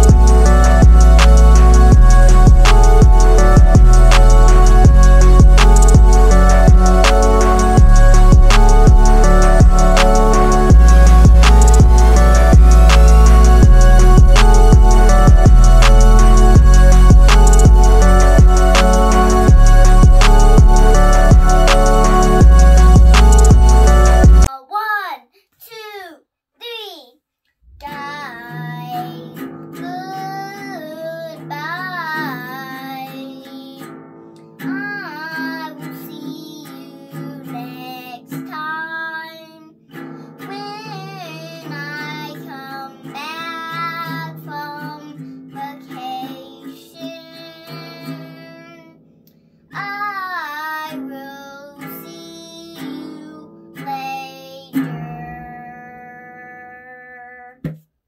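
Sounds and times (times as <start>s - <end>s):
high singing voice: 0.0s - 24.5s, 27.7s - 33.9s, 34.6s - 49.0s, 49.7s - 57.6s
steady musical accompaniment: 0.0s - 24.5s.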